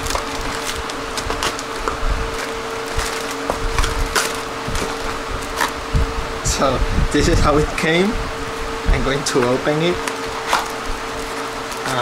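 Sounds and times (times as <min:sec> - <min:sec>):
plastic bag crinkling: 0:00.0 - 0:06.3, 0:09.2 - 0:12.0.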